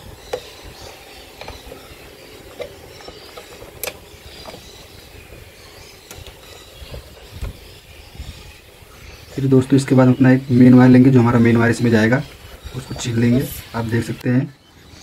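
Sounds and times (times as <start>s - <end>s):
small clicks of plastic breakers: 2.5s - 4.7s.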